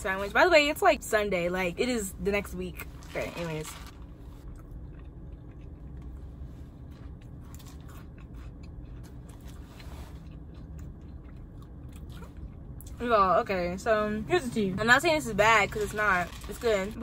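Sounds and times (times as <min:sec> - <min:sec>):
person chewing crispy sandwich: 0:02.8 - 0:13.0.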